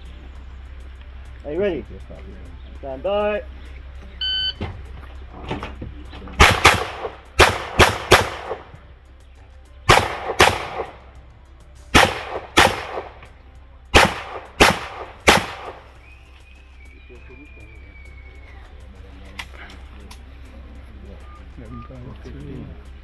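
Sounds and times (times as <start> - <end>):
shot timer beep: 4.2 - 4.6
gunshots with ringing echo: 6.4 - 8.7, 9.9 - 11.1, 11.9 - 13.2, 13.9 - 16.0.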